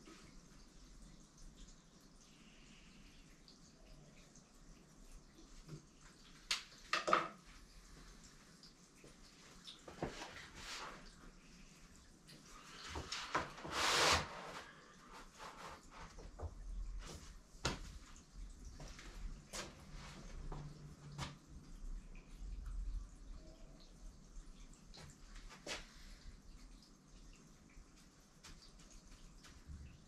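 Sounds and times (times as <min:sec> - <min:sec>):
paper rustling and sliding: 0:12.8 - 0:15.9.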